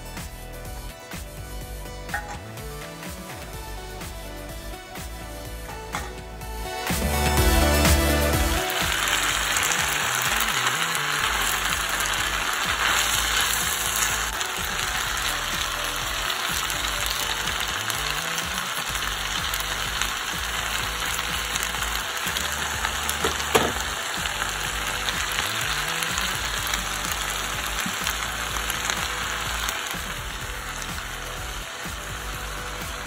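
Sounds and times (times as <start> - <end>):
spaghetti sizzling in a pan: 6.8 - 33.0.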